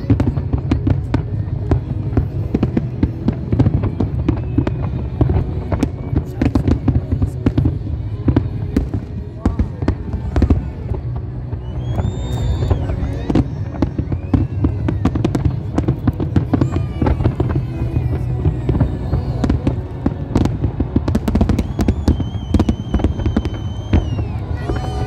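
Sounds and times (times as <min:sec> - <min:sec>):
fireworks bangs and crackles: 0:00.0 - 0:25.0
high firework whistle: 0:03.6 - 0:06.0, 0:11.5 - 0:25.0.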